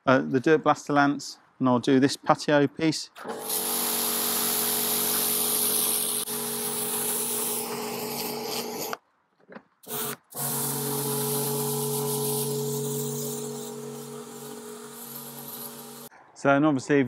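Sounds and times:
pressure washer motor humming: 0:03.2 - 0:09.0, 0:09.9 - 0:16.1
water jet hissing on paving: 0:03.4 - 0:09.0, 0:10.4 - 0:16.1.

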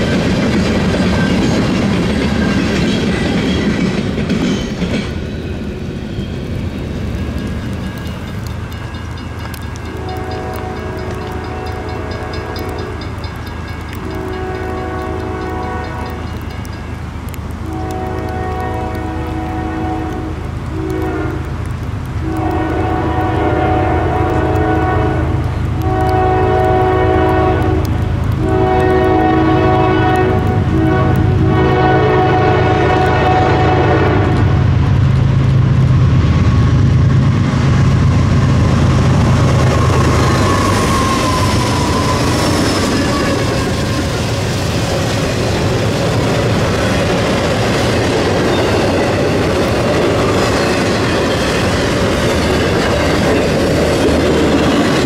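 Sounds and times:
train wheels clacking over rail joints: 0:00.0 - 0:05.6, 0:39.1 - 0:55.0
locomotive engines rumbling: 0:00.0 - 0:55.0
locomotive horn blasts: 0:09.9 - 0:13.2, 0:13.9 - 0:16.2, 0:17.6 - 0:21.5, 0:22.2 - 0:34.5.

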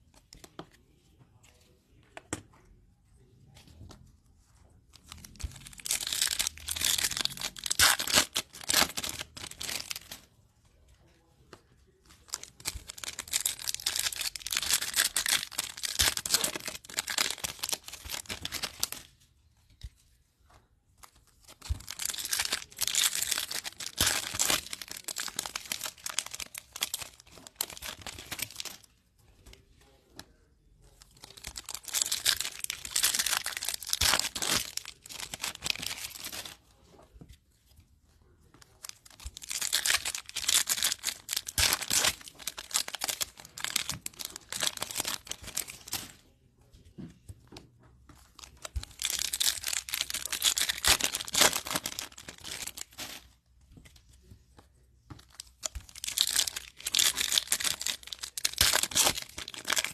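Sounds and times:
foil wrappers tearing and crinkling: 0:05.6 - 0:10.2, 0:12.3 - 0:19.1, 0:21.5 - 0:28.8, 0:31.2 - 0:36.6, 0:39.0 - 0:46.0, 0:48.5 - 0:53.2, 0:55.6 - 0:59.9.

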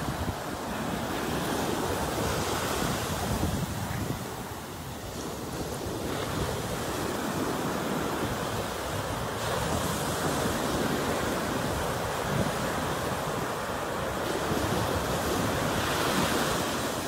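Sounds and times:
ocean surf breaking on beach: 0:00.0 - 0:17.0.

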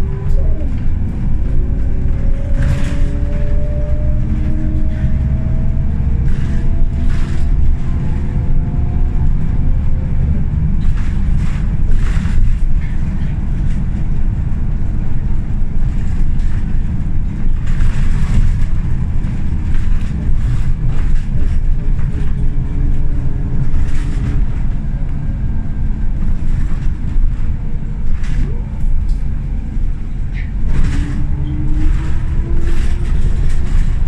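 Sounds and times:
rising whine: 0:00.0 - 0:06.9
bus engine and road rumble: 0:00.0 - 0:34.0.

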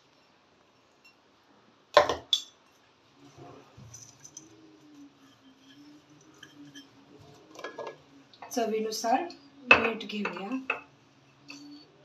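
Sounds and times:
faint handling sounds: 0:02.6 - 0:08.6.

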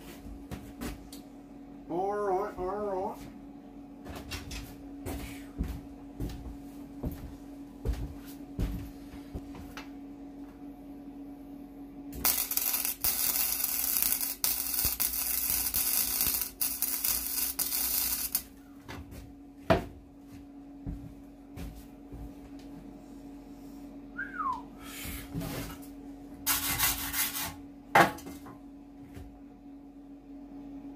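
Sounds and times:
welding arc crackling: 0:12.2 - 0:18.5.

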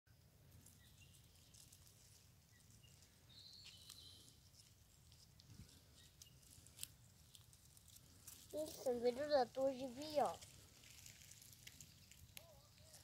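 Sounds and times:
faint bird chirps: 0:00.6 - 0:04.7.

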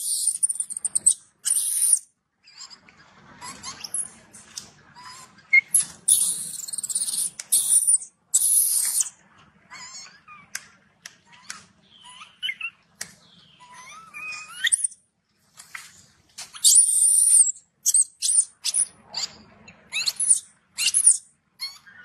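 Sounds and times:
baby monkey squeaky chirping cries: 0:00.0 - 0:02.8, 0:03.4 - 0:04.2, 0:05.0 - 0:09.1, 0:09.7 - 0:10.5, 0:11.3 - 0:12.8, 0:13.5 - 0:15.0, 0:16.5 - 0:22.0.

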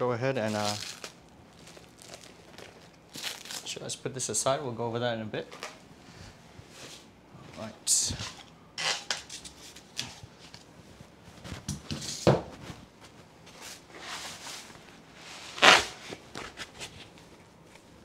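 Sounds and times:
cardboard and foam rustling: 0:00.4 - 0:03.8
plastic wrap crinkling: 0:00.4 - 0:04.0.

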